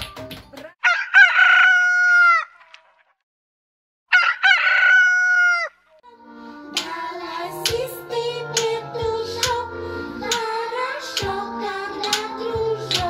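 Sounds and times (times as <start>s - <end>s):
rooster crowing: 0.8s - 2.6s, 4.1s - 5.8s.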